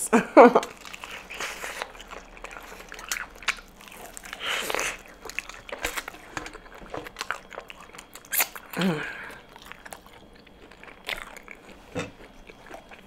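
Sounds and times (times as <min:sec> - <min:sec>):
crunchy fried chicken chewing: 0:00.5 - 0:13.0.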